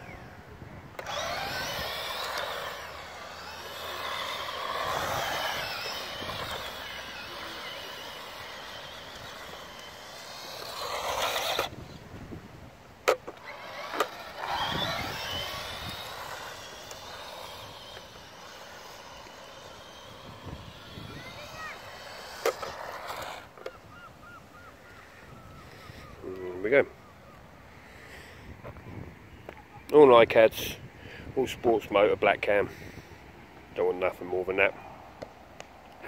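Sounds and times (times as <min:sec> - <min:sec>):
electric motor whining: 0:00.9 - 0:12.2, 0:13.0 - 0:23.8.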